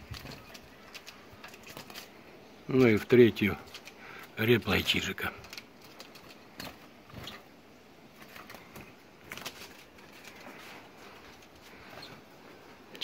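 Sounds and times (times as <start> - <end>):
caged birds calling: 0.0 - 13.0.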